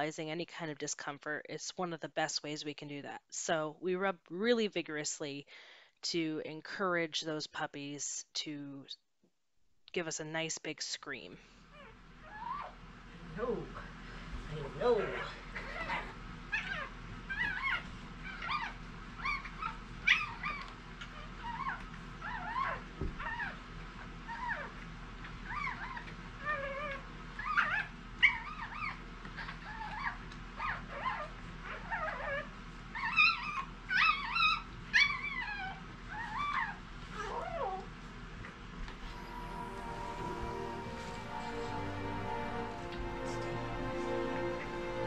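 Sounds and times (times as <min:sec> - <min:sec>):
puppy squeaking and crying: 0:11.8 - 0:12.8, 0:15.0 - 0:23.6, 0:24.3 - 0:37.9.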